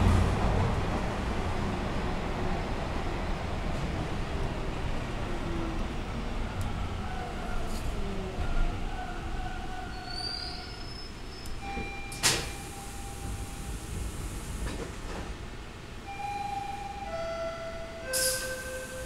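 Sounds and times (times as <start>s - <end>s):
subway train rumble: 0.0s - 19.0s
brief hiss: 18.1s - 19.0s.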